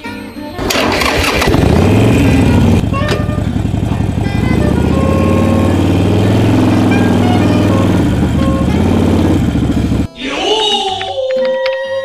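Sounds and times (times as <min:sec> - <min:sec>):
motorcycle engine starting and idling: 0:00.6 - 0:10.1.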